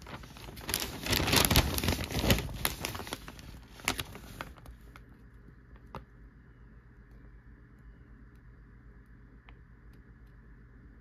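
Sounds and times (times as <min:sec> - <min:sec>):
newspaper rustling and crinkling: 0:00.0 - 0:05.0.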